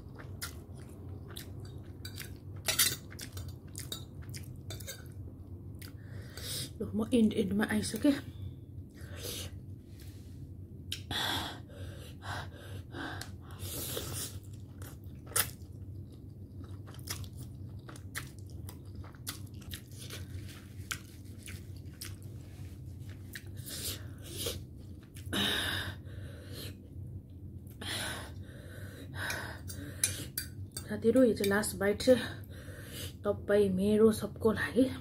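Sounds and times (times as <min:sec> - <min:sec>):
person chewing and slurping noodles: 0:00.0 - 0:05.2, 0:13.2 - 0:25.3.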